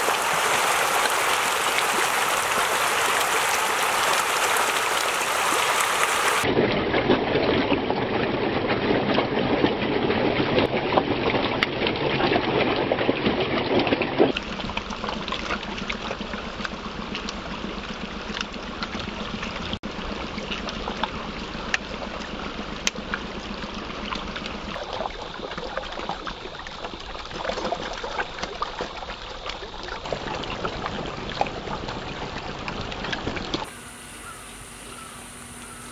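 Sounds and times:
fish thrashing and splashing: 0.0 - 6.5.

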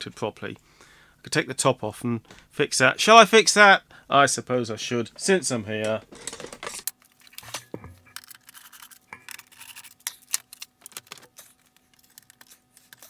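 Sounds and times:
hands clicking and scraping plastic case: 5.9 - 13.0.

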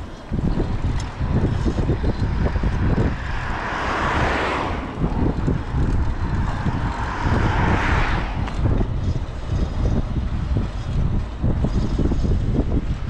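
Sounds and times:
motor vehicles passing: 0.0 - 13.0
wind rumbling on microphone: 0.0 - 13.0.

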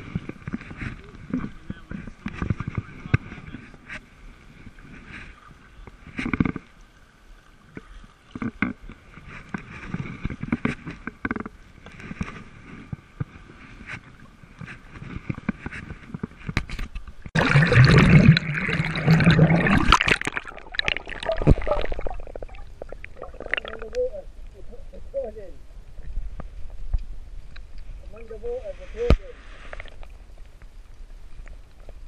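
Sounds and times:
paddle strokes splashing: 0.0 - 24.0
churning gurgling water: 0.0 - 25.0
water lapping against hull: 0.0 - 32.0.

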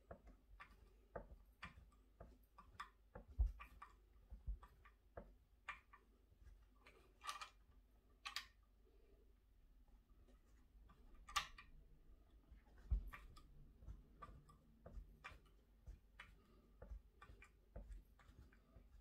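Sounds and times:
small metal clicks and taps: 6.8 - 7.6, 8.2 - 8.6, 10.9 - 11.8.

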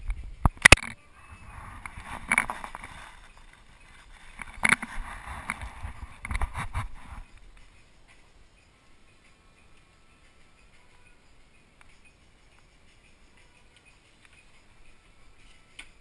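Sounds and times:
rubbing and rustling: 1.2 - 8.3.

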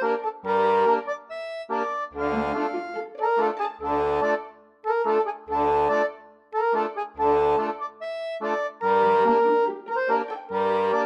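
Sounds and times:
low bass note: 2.2 - 3.4
sustained chords: 2.2 - 4.1.

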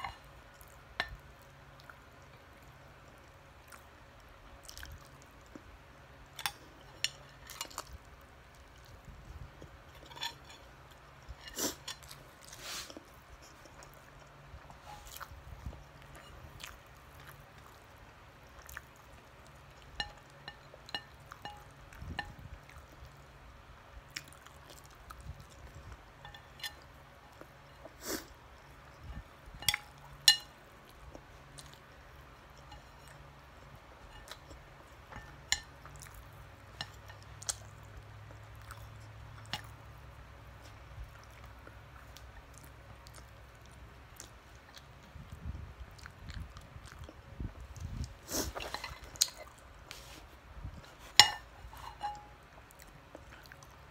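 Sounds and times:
person chewing food: 0.0 - 53.9
spoon clinking on plate: 51.2 - 52.3.

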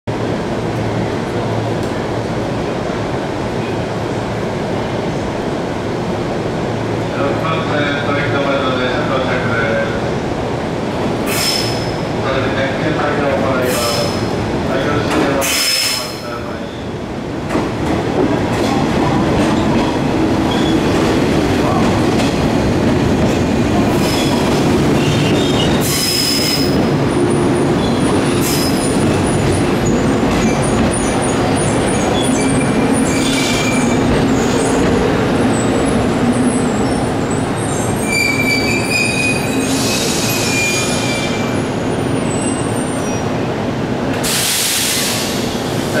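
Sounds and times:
train rumble: 0.1 - 46.0
high-pitched squeals: 36.6 - 41.5.

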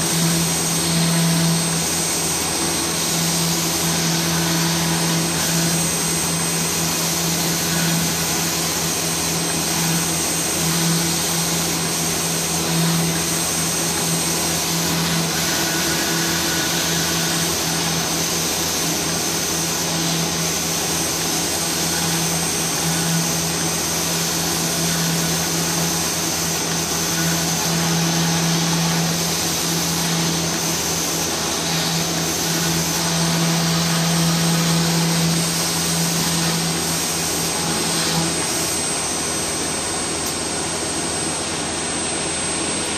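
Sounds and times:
dust extraction rushing: 0.0 - 40.1
router spindle milling: 0.0 - 41.2.

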